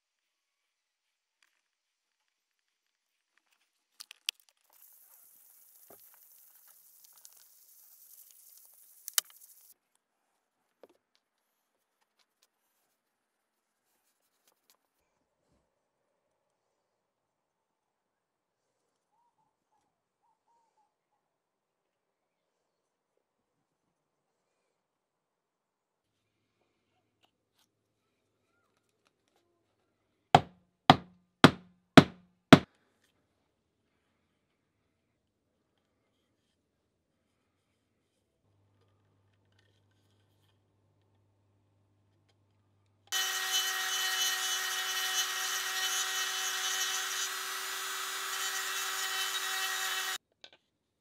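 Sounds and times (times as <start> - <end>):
hammer handle knocking on wooden bench: 30.4 - 32.2
rotary tool grinding wood: 43.1 - 50.2.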